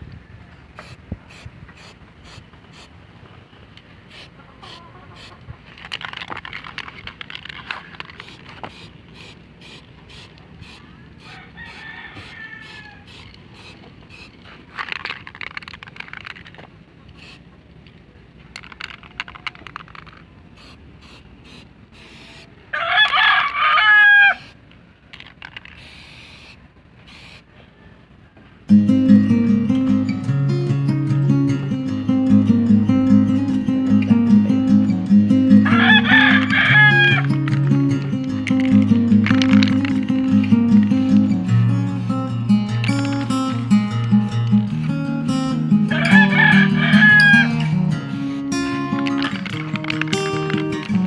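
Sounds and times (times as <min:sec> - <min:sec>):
spray paint can hissing: 0:00.8 - 0:02.9, 0:04.1 - 0:17.4, 0:18.5 - 0:22.5, 0:24.4 - 0:27.5, 0:35.8 - 0:51.0
rooster crowing: 0:11.2 - 0:13.2, 0:22.7 - 0:24.5, 0:35.5 - 0:37.4, 0:45.9 - 0:47.6.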